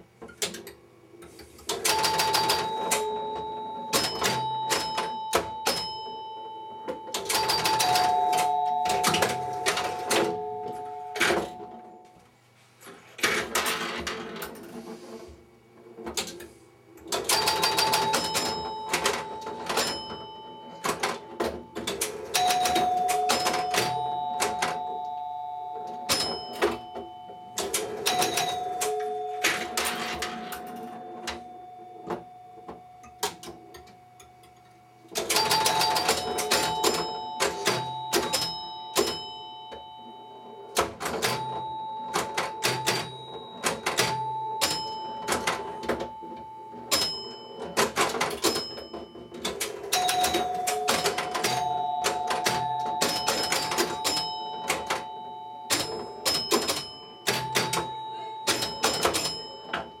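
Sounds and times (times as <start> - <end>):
pinball relays clicking and clacking: 0.2 - 12.1, 13.1 - 14.9, 16.0 - 60.0
chimes and bell ringing: 49.9 - 60.0.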